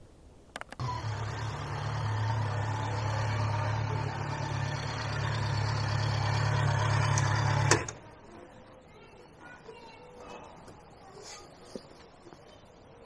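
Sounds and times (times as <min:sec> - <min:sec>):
motorcycle engine idling: 0:00.8 - 0:08.0.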